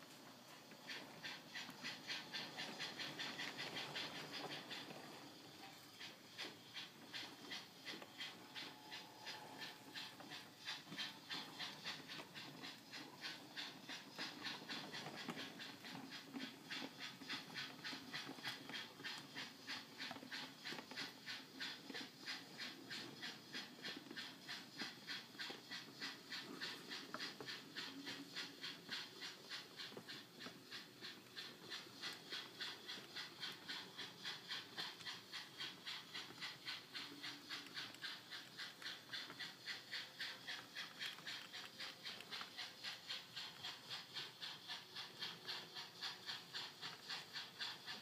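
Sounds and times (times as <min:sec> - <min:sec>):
steam locomotive exhaust chuffs: 0:00.0 - 0:48.0.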